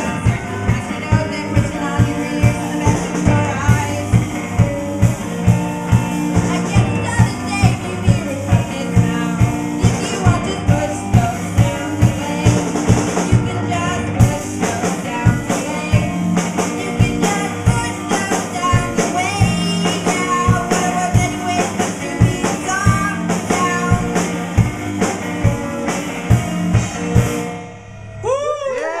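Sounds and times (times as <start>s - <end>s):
person singing: 0.0s - 4.7s, 6.4s - 24.4s
live band playing: 0.0s - 29.0s.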